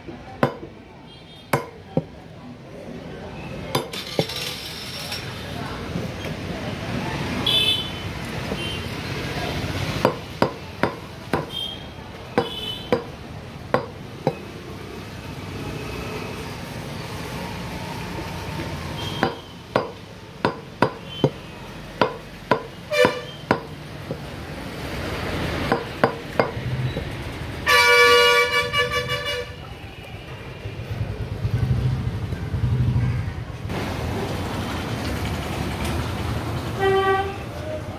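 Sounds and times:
cleaver chopping on wooden block: 0:00.4 - 0:00.8, 0:01.5 - 0:02.1, 0:10.0 - 0:11.6, 0:12.3 - 0:14.4, 0:19.2 - 0:21.4, 0:22.0 - 0:24.3, 0:25.7 - 0:26.6
vehicle horn honking: 0:22.9 - 0:23.5, 0:27.6 - 0:29.6, 0:36.8 - 0:37.4.

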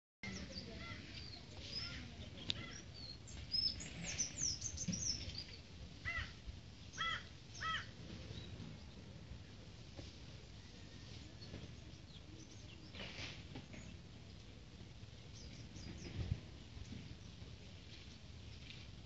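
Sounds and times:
birds chirping and whistling: 0:02.6 - 0:05.6.

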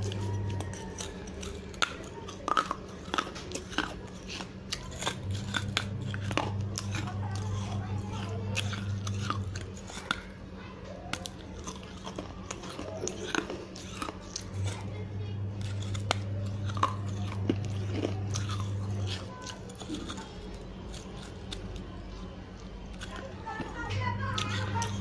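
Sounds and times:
low hum: 0:00.0 - 0:09.9, 0:13.4 - 0:23.0
teeth biting baked clay: 0:00.0 - 0:25.0.

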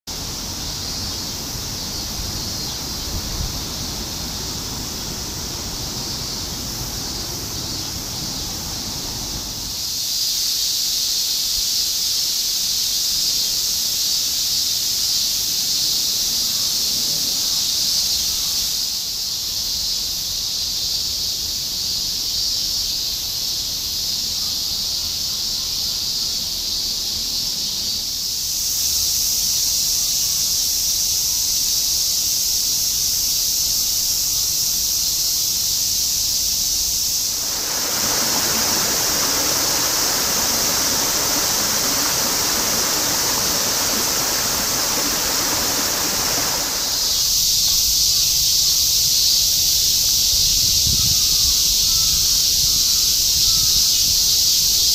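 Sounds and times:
cicadas chorus: 0:00.1 - 0:54.9
low rushing noise: 0:37.3 - 0:47.3.

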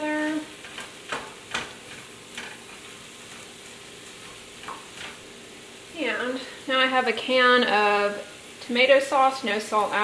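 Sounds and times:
wooden spoon scraping a pan: 0:00.0 - 0:05.2
beans sizzling in a frying pan: 0:00.0 - 0:10.0.

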